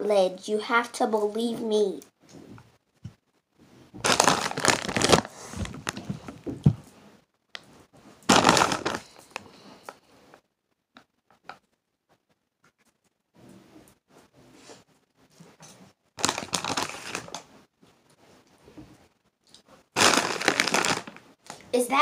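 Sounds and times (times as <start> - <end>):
foil bag crinkling: 4.0 - 6.4, 8.2 - 9.5, 16.2 - 17.5, 20.0 - 21.3.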